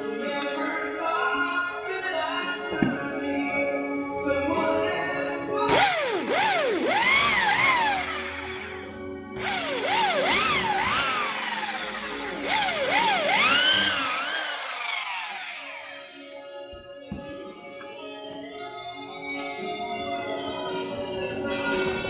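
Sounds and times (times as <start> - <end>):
electric drill boring into plastic: 5.7 - 16.3.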